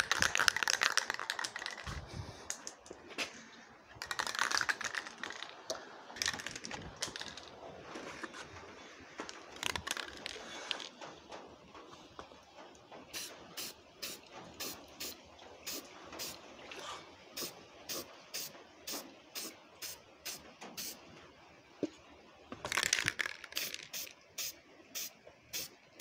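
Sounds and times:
aerosol can spraying: 13.2s - 15.1s, 17.4s - 21.0s, 23.6s - 25.7s.

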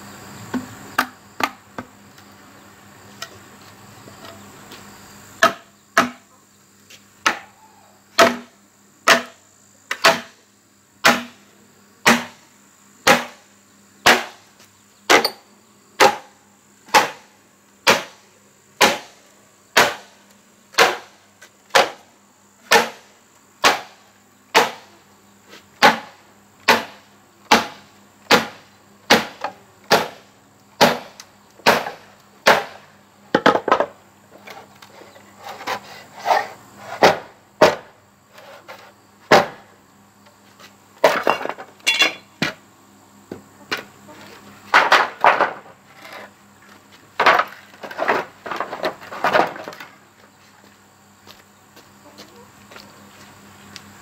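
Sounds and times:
bamboo cracking and clattering: 44.7s - 50.3s.

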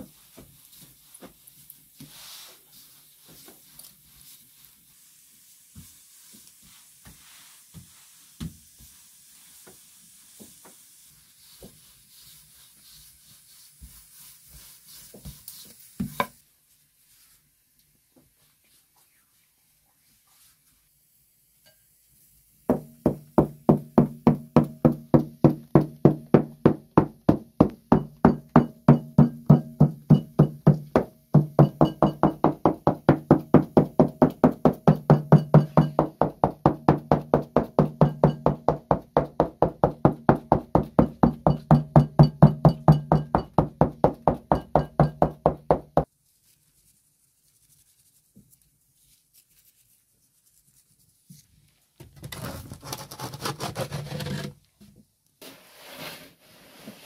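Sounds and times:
fingertips knocking on dough: 22.7s - 46.1s.

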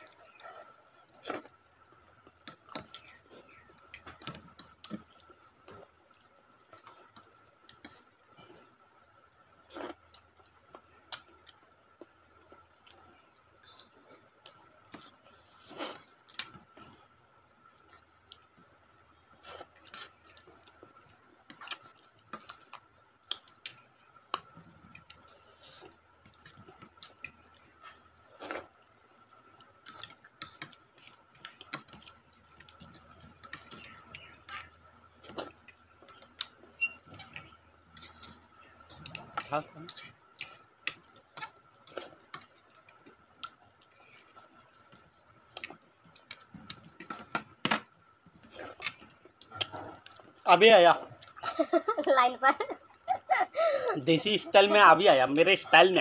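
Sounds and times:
chewing: 0.0s - 47.3s, 48.2s - 50.4s.

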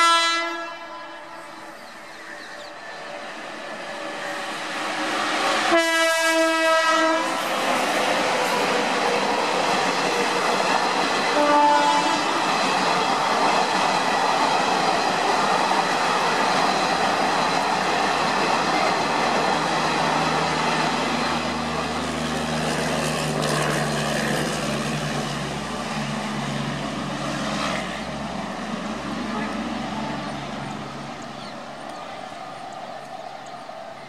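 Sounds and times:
train horn: 0.0s - 1.8s, 3.8s - 8.0s, 11.3s - 12.6s
train wheels rumbling on track: 0.0s - 34.0s.

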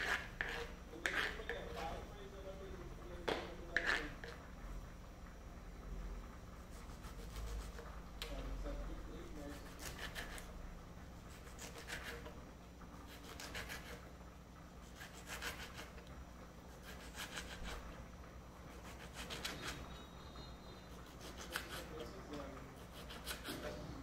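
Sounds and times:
knife slicing tomato on board: 0.0s - 1.9s, 3.3s - 4.4s, 9.4s - 10.5s, 11.3s - 12.4s, 13.0s - 14.0s, 14.8s - 16.0s, 16.7s - 17.9s, 18.7s - 19.8s, 21.0s - 22.0s, 22.8s - 23.8s.

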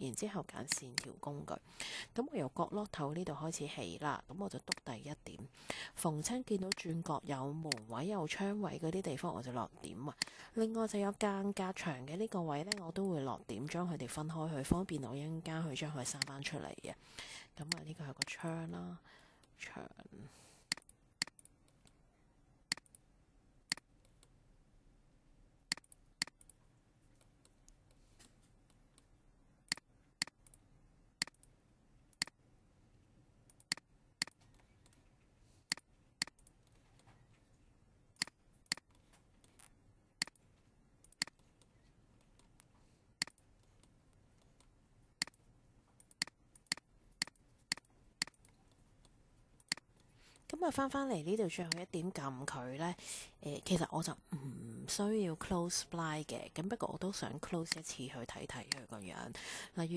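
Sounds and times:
computer mouse clicking: 0.7s - 1.1s, 7.7s - 7.9s, 12.6s - 12.9s, 20.7s - 22.0s, 22.7s - 23.1s, 23.7s - 24.4s, 25.7s - 26.6s, 29.7s - 30.6s, 31.2s - 32.4s, 33.5s - 35.1s, 35.7s - 37.4s, 38.2s - 50.5s.

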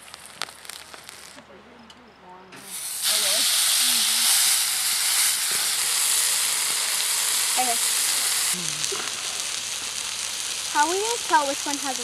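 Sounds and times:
patties sizzling in a skillet: 2.7s - 12.0s.

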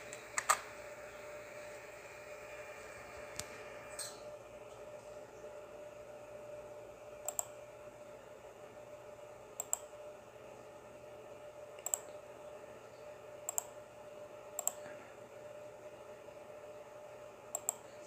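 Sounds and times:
faint hum: 0.0s - 18.0s
computer mouse button clicking: 7.2s - 7.5s, 13.5s - 13.7s.

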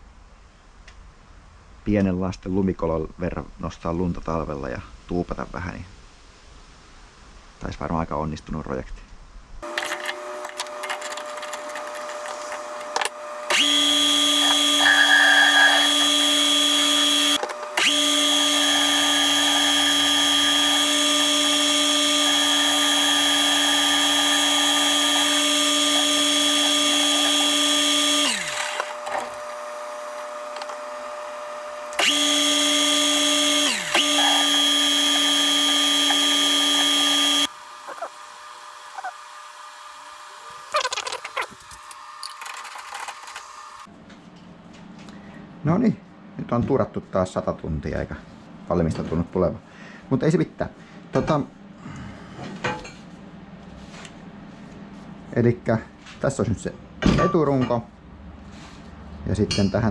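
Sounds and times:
metal lathe motor whine: 9.6s - 43.9s.

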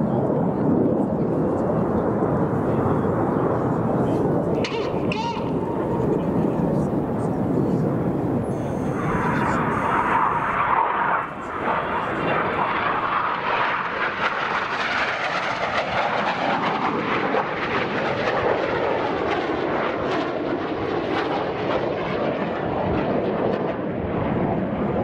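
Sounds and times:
jet flying past: 0.0s - 25.0s.

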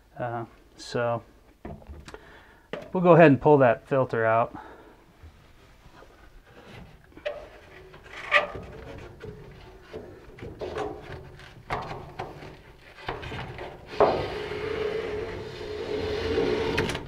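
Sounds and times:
filter scraping and rubbing: 5.8s - 17.0s.

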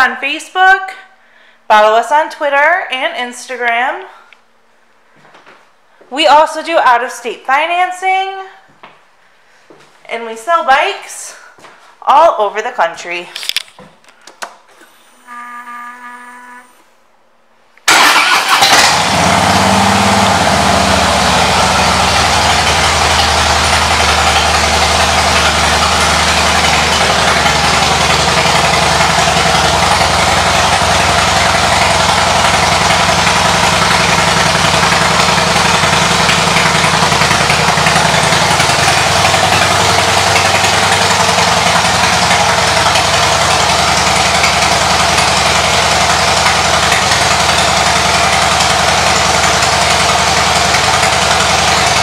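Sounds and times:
motorcycle engine idling: 18.0s - 52.0s.

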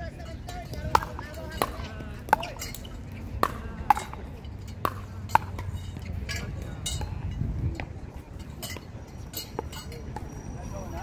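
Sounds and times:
paddles hitting plastic ball: 0.7s - 5.8s.

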